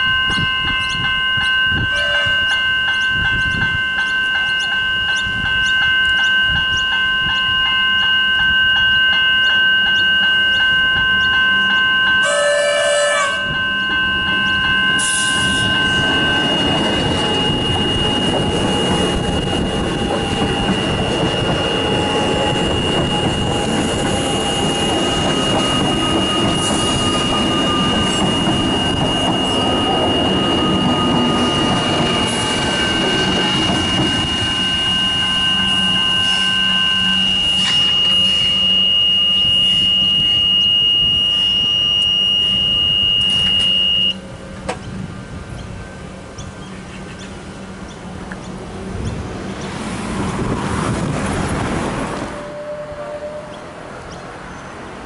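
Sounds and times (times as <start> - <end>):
level crossing bell ringing: 0.0 - 22.8
electric train rumbling past: 0.0 - 55.0.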